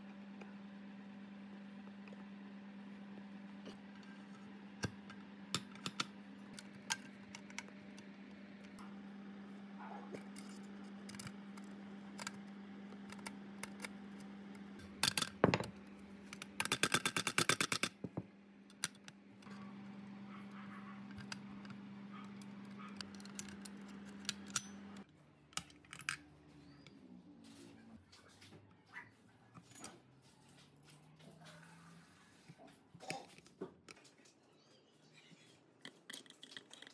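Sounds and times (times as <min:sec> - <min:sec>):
steady low hum: 0:00.0 - 0:16.9, 0:17.7 - 0:28.3.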